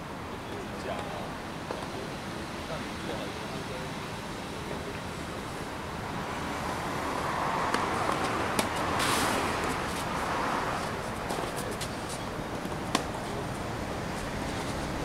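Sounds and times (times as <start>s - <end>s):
road traffic: 0.0s - 15.0s
tennis ball pops: 7.7s - 8.8s, 12.6s - 13.2s.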